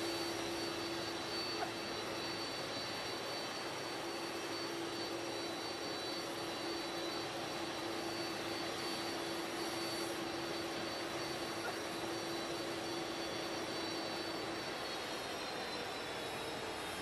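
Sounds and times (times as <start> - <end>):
jet engines running: 0.0 - 17.0.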